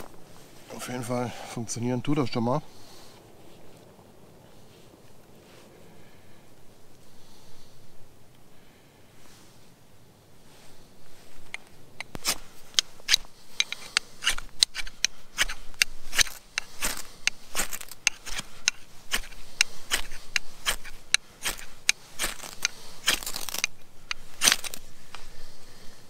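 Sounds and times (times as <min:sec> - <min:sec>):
knife scraping ferrocerium rod: 0:11.5 - 0:24.9.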